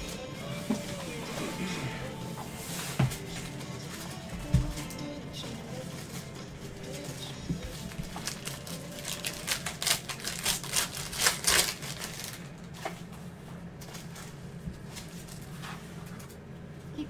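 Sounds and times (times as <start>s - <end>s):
handling of cards: 2.7s - 16.4s
foil wrapper crinkling tears: 7.8s - 12.7s.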